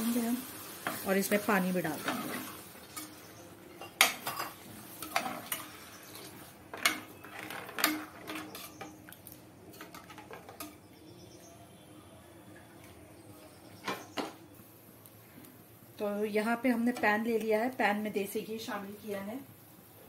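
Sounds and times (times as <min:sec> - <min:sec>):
ladle scraping metal pot: 0:04.4 - 0:09.0
metal ladle clanking on pot: 0:06.7 - 0:09.0.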